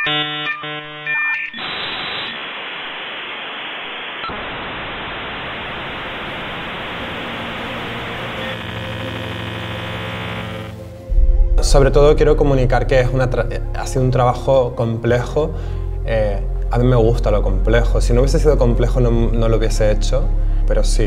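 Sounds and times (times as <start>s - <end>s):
synthesized tones: 0.0s - 11.9s
white-noise hiss: 1.6s - 11.1s.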